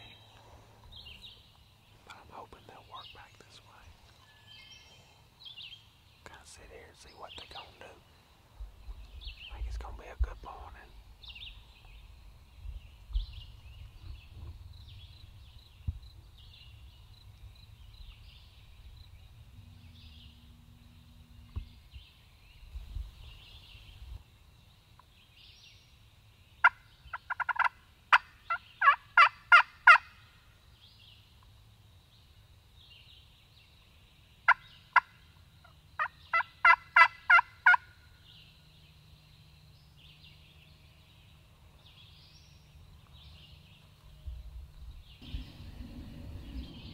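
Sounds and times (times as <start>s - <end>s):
turkey yelps: 26.6s - 30.1s, 36.0s - 37.9s.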